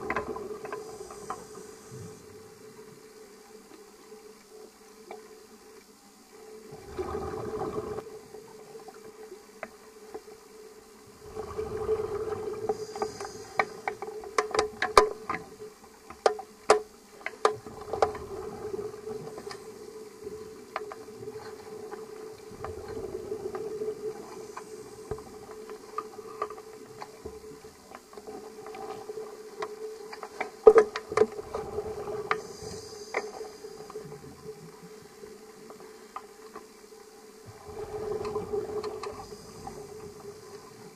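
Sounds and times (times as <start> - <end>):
regulator hiss: 0.0 - 4.7, 10.5 - 16.0, 17.1 - 30.4, 31.6 - 40.9
steady hum: 0.0 - 16.1, 31.2 - 40.9
exhaled bubbles rushing: 6.7 - 8.0, 11.1 - 12.9, 37.5 - 40.9.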